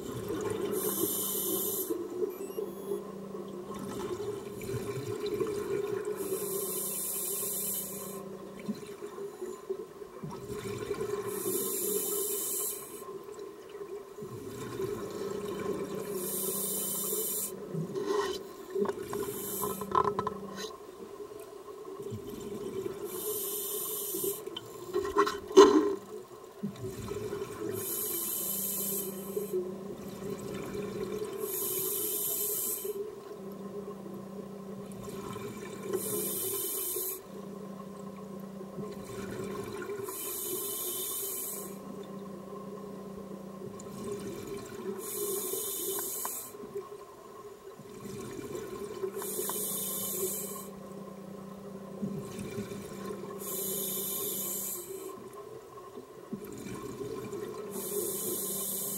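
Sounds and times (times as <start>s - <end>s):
regulator hissing inhalations: 0.7s - 2.0s, 6.2s - 8.2s, 11.3s - 13.1s, 16.2s - 17.6s, 19.2s - 19.9s, 23.1s - 24.5s, 27.8s - 29.6s, 31.4s - 33.0s, 36.0s - 37.3s, 40.0s - 41.8s, 45.0s - 46.6s, 49.2s - 50.8s, 53.4s - 55.2s, 57.7s - 58.9s
steady low hum: 26.1s - 58.9s.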